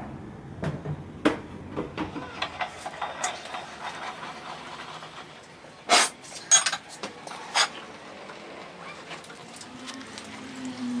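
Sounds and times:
loud clatter: 2.0s - 7.8s.

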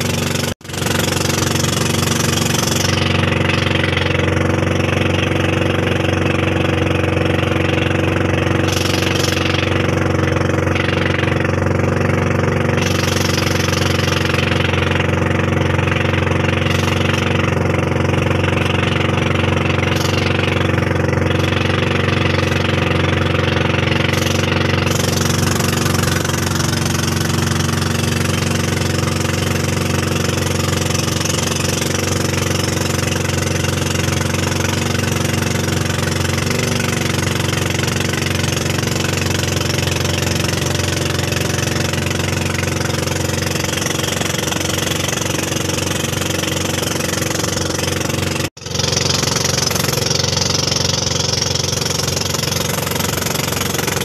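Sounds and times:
motorboat engine running: 0.0s - 54.0s.

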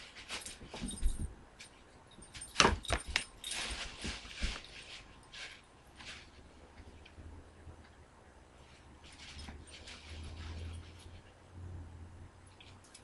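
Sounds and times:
kittens scuffling on carpet: 0.0s - 7.3s, 8.6s - 11.4s
plastic bag crinkling: 2.6s - 6.6s, 9.0s - 11.3s.

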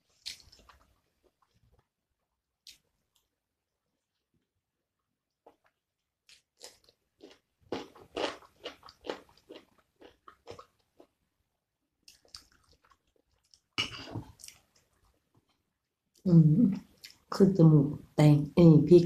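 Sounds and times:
cucumber crunching: 0.1s - 0.9s.

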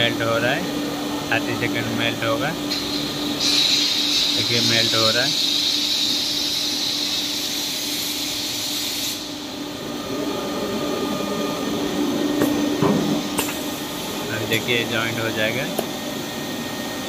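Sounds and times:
machine hum: 0.0s - 17.0s
welding machine hiss: 1.6s - 9.8s, 12.4s - 17.0s.

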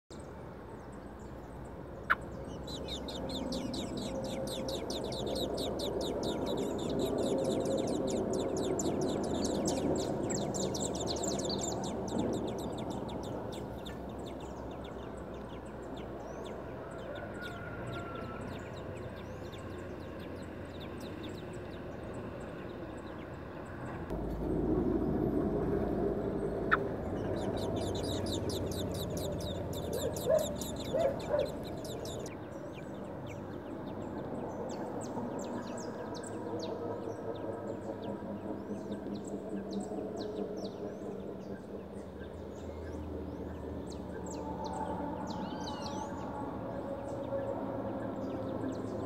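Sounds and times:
nestlings begging calls: 2.0s - 16.4s, 26.6s - 32.4s.

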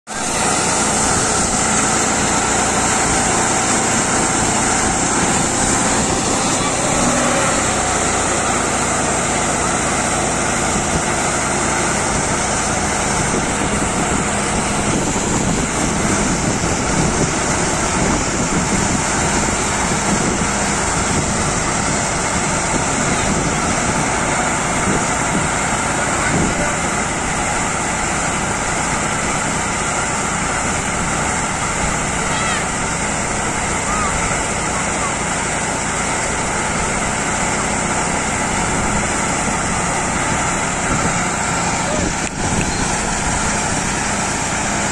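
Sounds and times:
tractor engine and machinery din: 0.0s - 44.9s.

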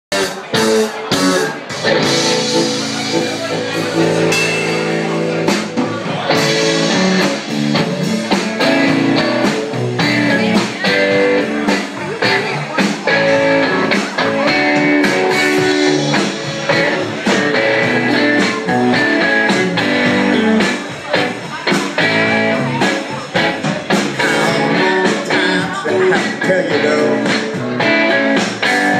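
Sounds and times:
drum kit: 0.1s - 28.9s
electric guitars: 0.1s - 28.9s.

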